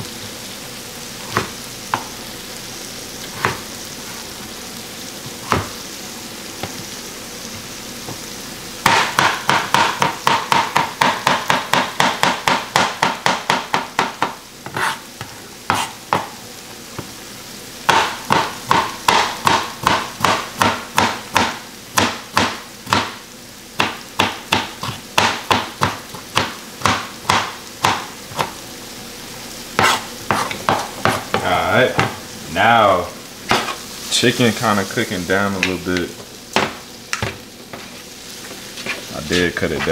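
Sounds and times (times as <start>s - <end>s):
chicken sizzling in a pan: 0.0s - 39.9s
knife chopping on plastic board: 3.3s - 3.6s, 5.4s - 5.8s, 8.8s - 15.0s, 15.7s - 16.3s, 17.9s - 23.2s, 23.8s - 28.6s, 29.8s - 32.2s, 33.5s - 33.8s, 36.6s - 37.8s.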